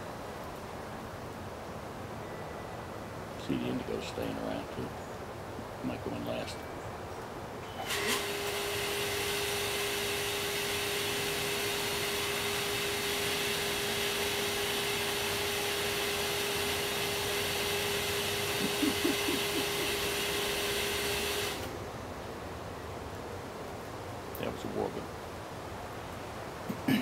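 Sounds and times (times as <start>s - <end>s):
machine whooshing hum: 7.9s - 21.8s.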